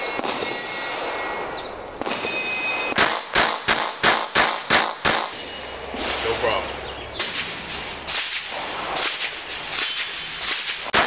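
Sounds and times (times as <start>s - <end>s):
steel target plates ringing: 0.0s - 11.0s
pistol shots: 2.0s - 5.4s, 7.2s - 11.0s.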